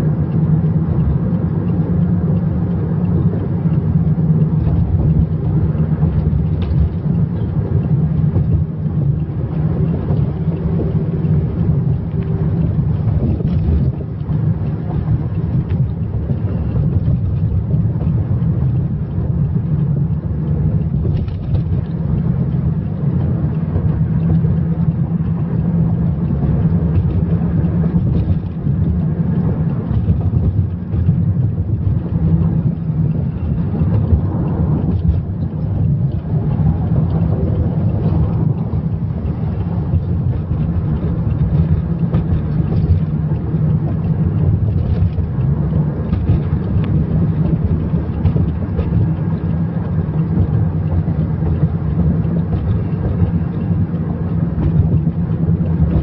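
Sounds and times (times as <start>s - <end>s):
car interior road rumble: 0.0s - 56.0s.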